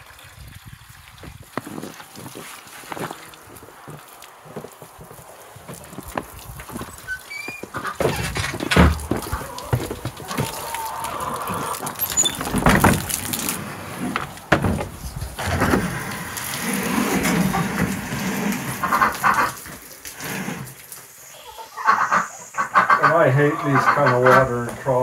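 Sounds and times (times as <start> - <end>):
farm animals calling: 6.7 - 12.7, 18.7 - 19.8, 21.2 - 25.0
knocks and clatter: 7.7 - 10.6, 11.8 - 16.1.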